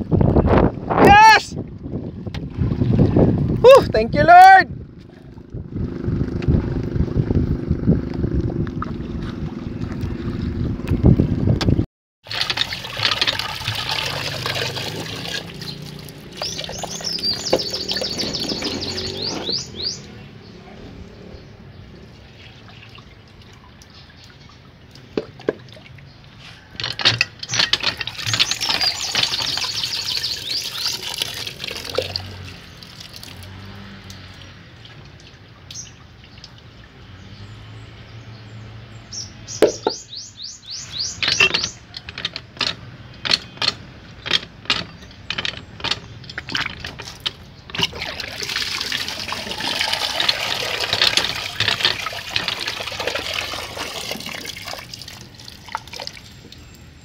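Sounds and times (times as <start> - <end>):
water pouring into basin: 12.2 - 17.2, 28.0 - 35.3, 47.8 - 56.6
water splashing in metal basin: 12.2 - 19.2, 22.2 - 26.4, 27.0 - 37.3, 44.7 - 56.8.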